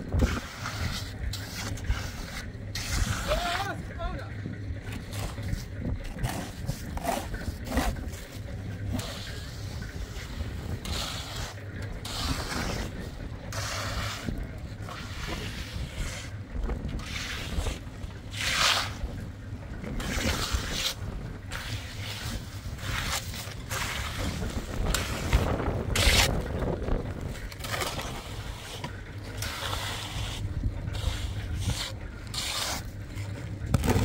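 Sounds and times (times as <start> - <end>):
trowel scraping wet concrete: 0.0 - 34.0
wind noise on microphone: 0.0 - 34.0.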